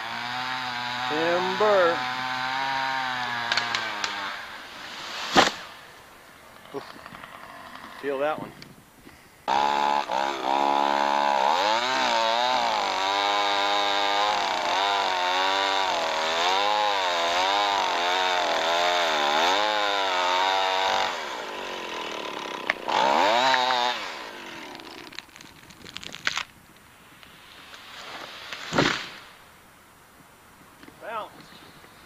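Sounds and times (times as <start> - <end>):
chainsaw cutting tree trunk: 0.0 - 5.9, 9.5 - 26.5, 27.7 - 29.4.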